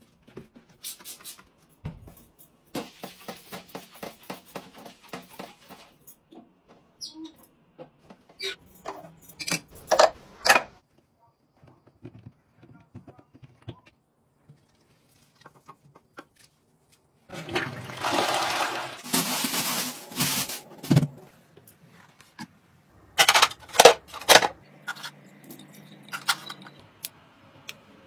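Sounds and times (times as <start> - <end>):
toilet flushing: 17.3 - 20.8.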